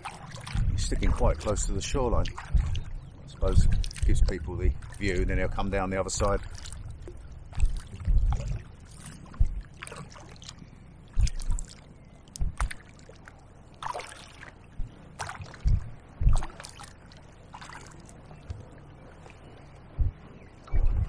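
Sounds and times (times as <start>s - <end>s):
dull low thumps: 0.0s - 9.9s, 11.1s - 12.8s, 14.7s - 16.8s, 19.8s - 21.0s
paddle splashing in water: 0.0s - 21.0s.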